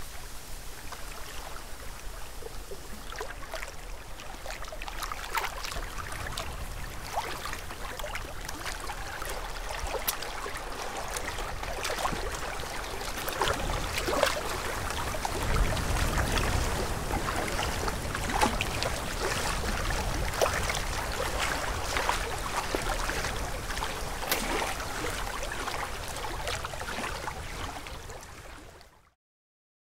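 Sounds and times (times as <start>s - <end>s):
waves lapping on rocks: 0.7s - 28.6s
wind on microphone: 5.7s - 28.7s.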